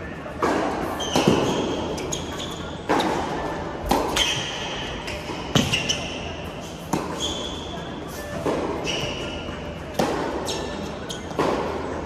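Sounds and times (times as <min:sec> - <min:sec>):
sneakers squeaking on court: 0:00.8 - 0:11.6
tennis ball bouncing: 0:02.8 - 0:06.0, 0:09.9 - 0:10.7, 0:11.3 - 0:11.8.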